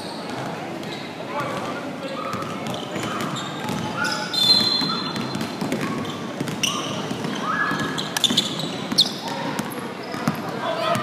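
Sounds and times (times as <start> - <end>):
basketball bouncing on court: 2.3 - 11.0.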